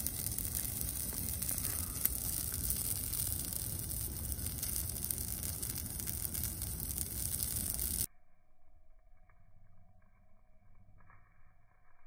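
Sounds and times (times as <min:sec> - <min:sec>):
fire crackles and pops: 0:00.0 - 0:08.1
fire flames rushing: 0:00.0 - 0:08.1.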